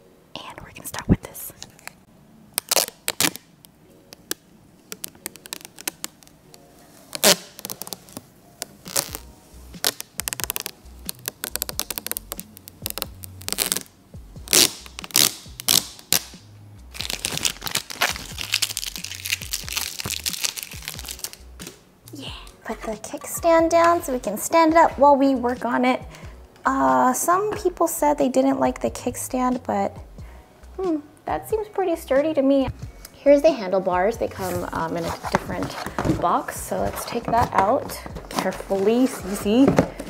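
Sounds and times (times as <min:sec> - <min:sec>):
plastic wrapping crinkling: 0:02.6 - 0:13.9, 0:14.5 - 0:16.3, 0:16.9 - 0:21.5, 0:34.5 - 0:40.0.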